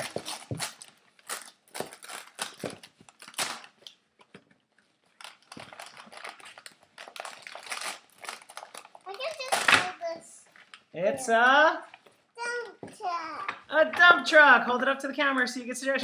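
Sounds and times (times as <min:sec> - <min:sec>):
paper bags and tissue rustling: 0:00.0 - 0:03.9, 0:04.8 - 0:10.8.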